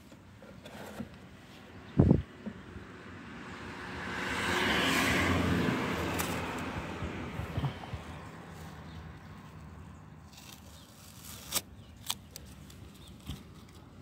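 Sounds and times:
road vehicle rumble passing: 1.2s - 11.0s.

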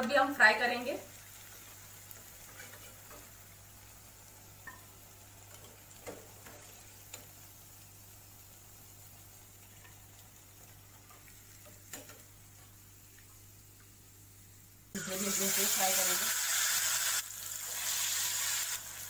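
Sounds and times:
faint sizzle of frying: 0.0s - 19.0s
metal spoon tapping and scraping pan: 5.5s - 7.4s, 11.0s - 12.3s.

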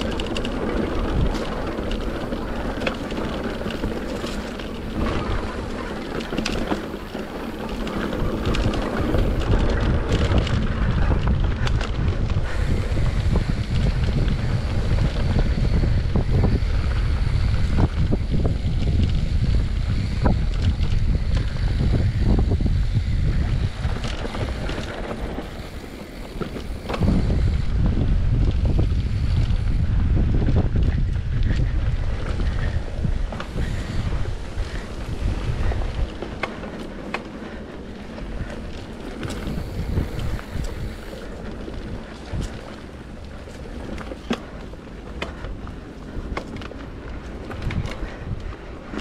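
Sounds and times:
tyres rolling over dirt: 0.0s - 16.0s, 23.3s - 29.7s, 31.0s - 49.0s
bike clicks and knocks on bumps: 0.0s - 49.0s
wind buffeting microphone: 0.0s - 49.0s.

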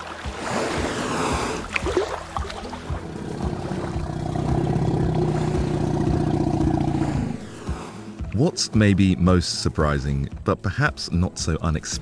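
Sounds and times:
water splashing: 0.0s - 8.1s.

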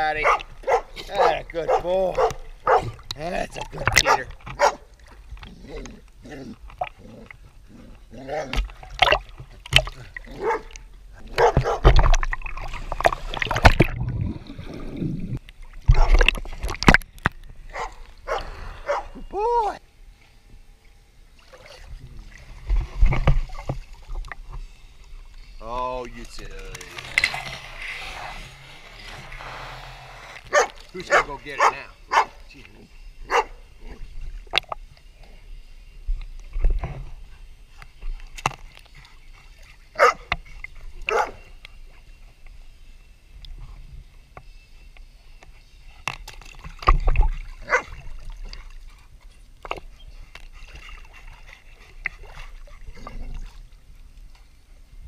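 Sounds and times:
water sloshing and gurgling: 0.0s - 19.3s, 20.1s - 44.3s, 45.4s - 55.0s
dogs barking: 0.2s - 3.0s, 4.0s - 4.9s, 10.3s - 11.9s, 17.7s - 19.2s, 30.5s - 32.4s, 33.3s - 33.6s, 40.0s - 40.3s, 41.0s - 41.4s, 47.6s - 48.0s
water lapping: 21.3s - 34.8s, 46.4s - 54.7s.

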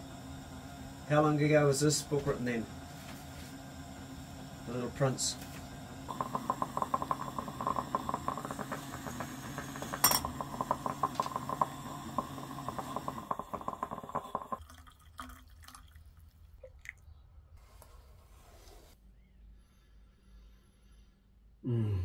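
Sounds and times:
moka pot gurgling and sputtering: 0.0s - 15.8s
coffee pouring into metal mug: 4.7s - 17.0s.

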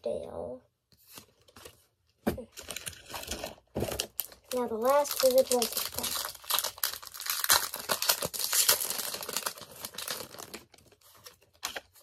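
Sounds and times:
foil wrapper crinkling: 2.6s - 12.0s.

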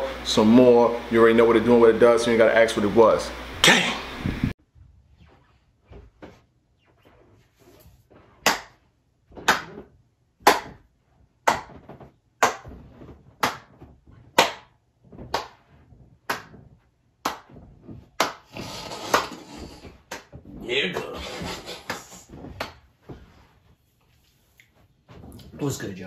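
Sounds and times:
person clapping: 8.4s - 8.7s, 15.3s - 15.6s, 16.3s - 16.6s, 17.2s - 17.5s, 18.2s - 18.4s.

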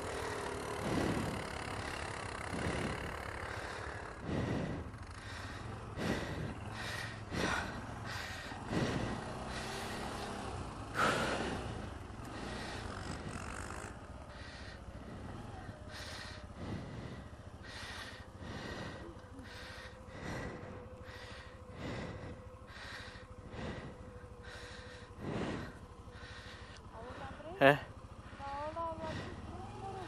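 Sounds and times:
atv engine running with surges: 0.0s - 30.0s.

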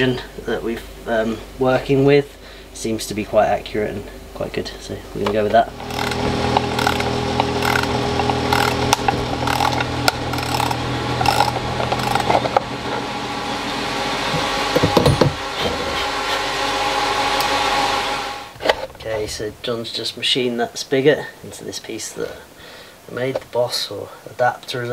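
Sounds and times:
metal lathe humming: 5.6s - 18.6s
gritty metal cutting scrapes: 5.7s - 13.0s
metal clatter: 5.8s - 12.6s.

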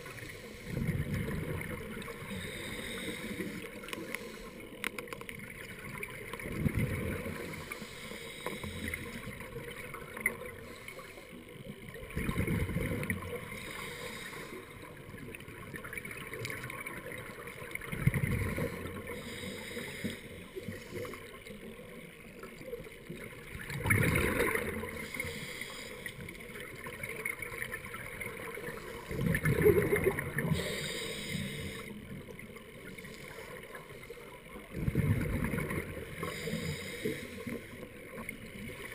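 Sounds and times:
gurgling rush of bubbles: 0.0s - 4.3s, 5.2s - 7.7s, 11.9s - 13.7s, 15.0s - 19.3s, 22.4s - 25.2s, 26.4s - 30.9s, 34.6s - 38.9s
quiet underwater noise: 0.0s - 38.9s.

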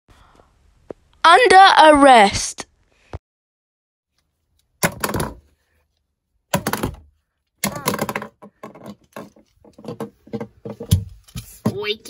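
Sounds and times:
plastic toys thumping on wooden shelf: 4.8s - 5.6s, 6.5s - 12.0s
small knocks of toys settling: 6.5s - 11.8s.

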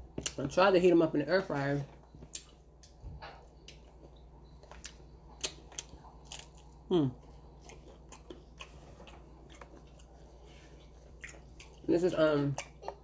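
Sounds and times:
close-up chewing with crunches: 2.2s - 13.0s.

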